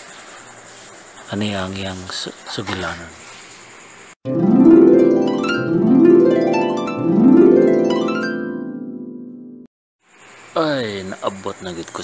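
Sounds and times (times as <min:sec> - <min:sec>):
rising plucked string glissandos: 0:04.3 - 0:09.6.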